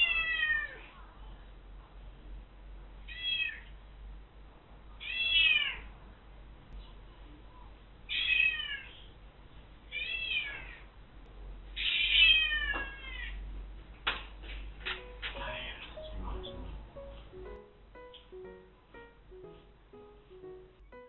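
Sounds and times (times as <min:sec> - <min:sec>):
cat meowing: 0:00.0 - 0:00.8, 0:05.0 - 0:05.9, 0:08.1 - 0:09.0, 0:09.9 - 0:10.8, 0:11.8 - 0:13.4.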